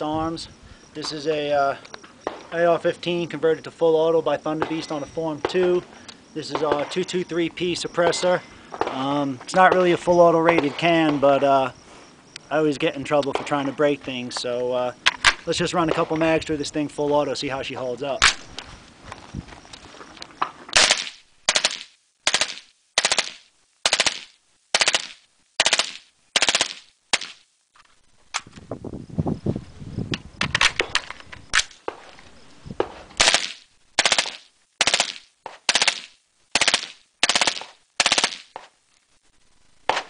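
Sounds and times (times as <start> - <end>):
suppressed rifle firing bursts: 20.7 - 27.4, 33.2 - 38.7.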